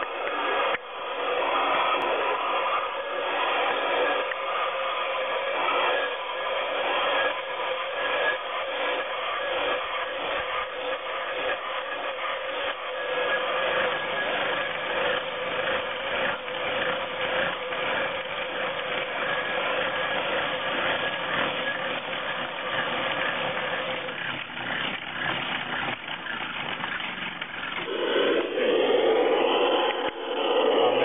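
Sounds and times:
scratchy grainy noise: 0.0s - 18.2s, 27.7s - 31.0s
steady drone tone: 0.0s - 24.2s, 27.7s - 31.0s.

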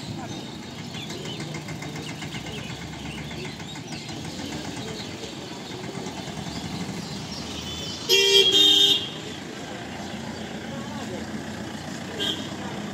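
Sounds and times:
slow road traffic engines rumbling: 0.0s - 12.9s.

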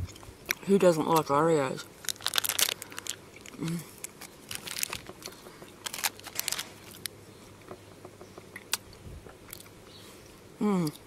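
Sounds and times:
chocolate bar crackling: 0.5s - 7.2s.

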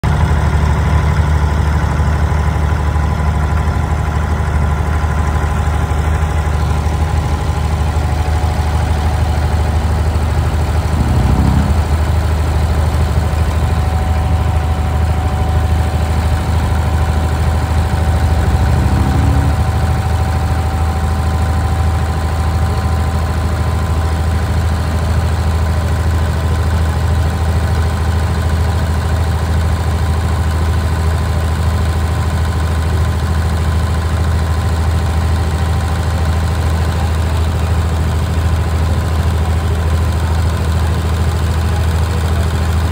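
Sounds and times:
boat engine droning: 6.4s - 22.5s.

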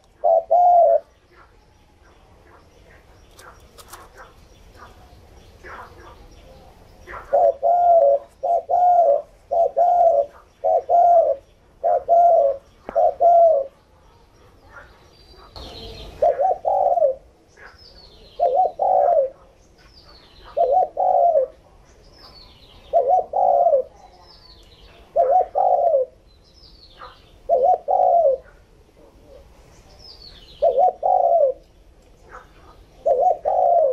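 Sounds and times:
dove cooing: 0.0s - 14.0s, 14.7s - 19.5s, 20.2s - 21.8s, 22.8s - 24.2s, 24.9s - 26.2s, 27.0s - 29.5s, 30.6s - 33.9s.

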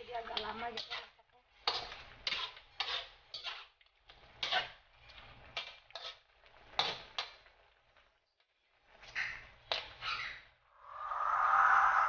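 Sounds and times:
metal spatula scraping a wok: 0.2s - 7.4s.

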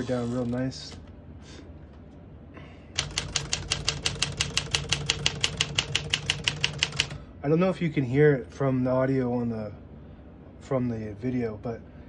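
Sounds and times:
typewriter key strikes: 3.0s - 7.2s.

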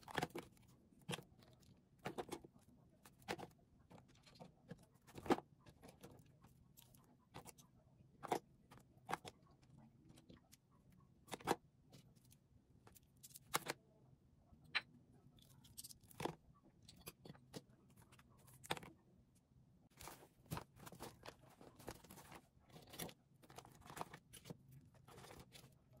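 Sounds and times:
soft rustling: 19.9s - 26.0s.

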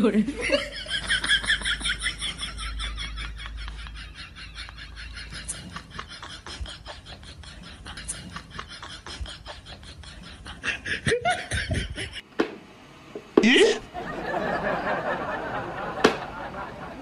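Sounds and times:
person laughing: 0.4s - 12.3s.

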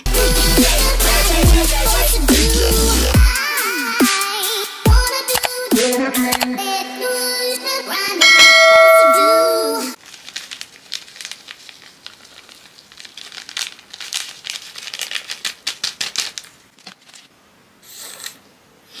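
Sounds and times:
upbeat intro music: 0.0s - 3.4s
plastic sachet crinkling: 10.0s - 17.4s.

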